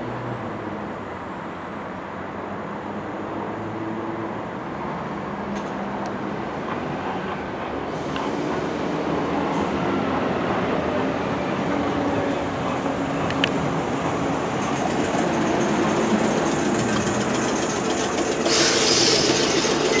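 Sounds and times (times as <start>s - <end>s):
train rumbling slowly: 5.6s - 20.0s
air brake hiss: 18.4s - 19.8s.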